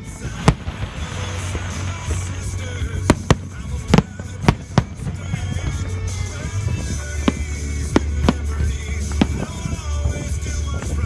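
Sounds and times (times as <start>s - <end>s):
background music: 0.0s - 11.0s
fireworks bangs: 0.0s - 11.0s.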